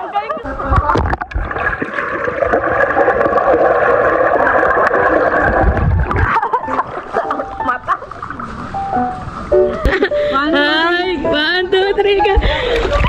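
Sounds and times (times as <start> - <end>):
muffled underwater rushing: 0.5 - 10.0
water splashing: 0.5 - 10.3.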